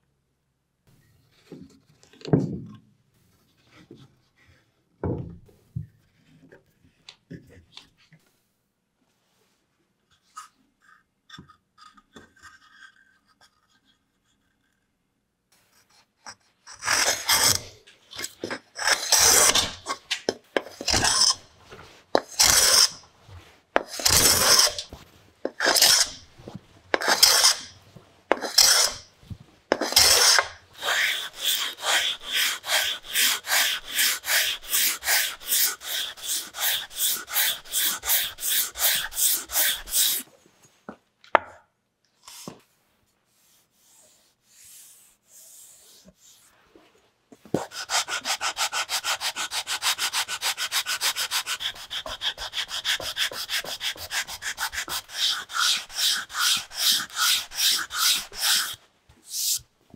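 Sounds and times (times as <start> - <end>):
hand plane shaving wood: 16.4 - 29.1, 29.7 - 40.3, 47.5 - 59.6.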